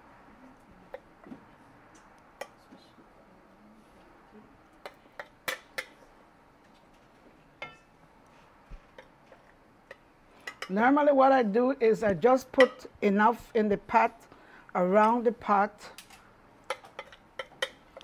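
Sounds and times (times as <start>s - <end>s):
metal spoon clinking on ceramic dish: 7.6s - 7.9s, 12.5s - 12.9s.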